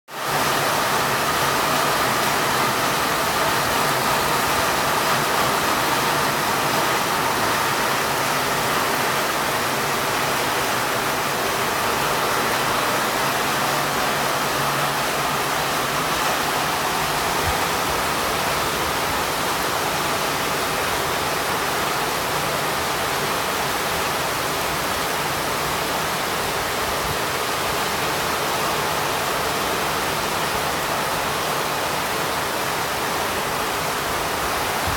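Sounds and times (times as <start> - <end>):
heavy rain on foliage and roofs: 0.1 - 34.9.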